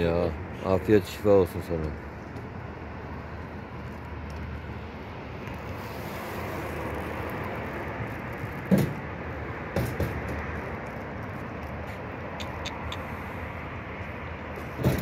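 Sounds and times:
street background noise: 0.0 - 15.0
car passing: 2.0 - 15.0
sharp knocks: 8.7 - 9.0, 9.7 - 10.5.

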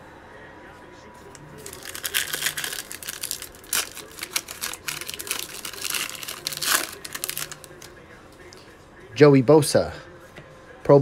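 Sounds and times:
foil wrapper tearing and crinkling: 1.6 - 7.9.

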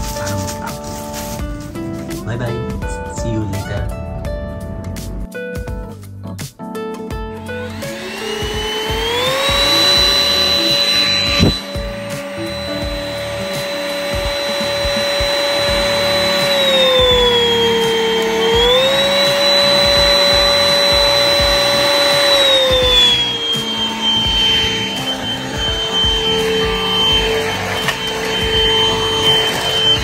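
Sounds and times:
vacuum motor whining: 7.4 - 30.0.

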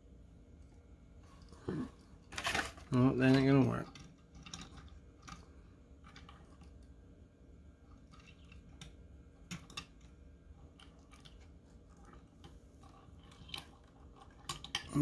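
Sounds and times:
toy cars clicking on stand: 12.9 - 15.0.

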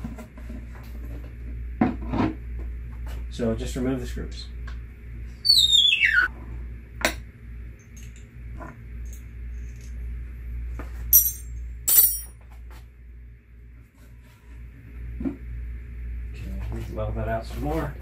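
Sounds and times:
short squeak falling in pitch: 5.4 - 6.3
sharp metallic clinks: 11.2 - 12.3.

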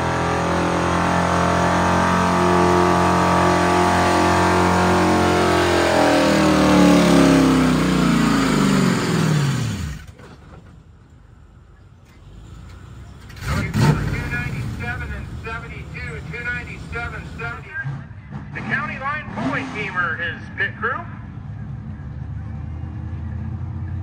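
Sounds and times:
engine running at high revs: 0.0 - 10.1.

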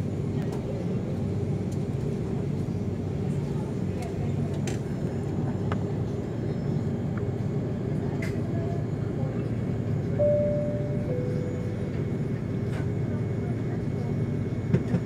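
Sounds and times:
airliner engine rumble in cabin: 0.0 - 15.0
short tone stepping down: 10.2 - 12.0.

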